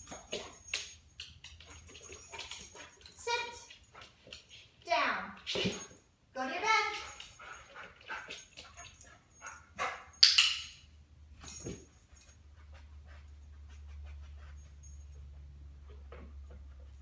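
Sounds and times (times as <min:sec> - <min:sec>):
dog claws clicking on wood floor: 0:00.0 - 0:04.6, 0:09.8 - 0:10.8.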